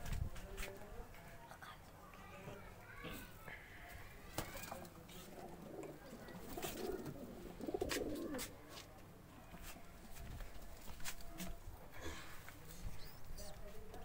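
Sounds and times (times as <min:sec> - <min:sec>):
pigeons cooing: 0:05.1 - 0:08.5.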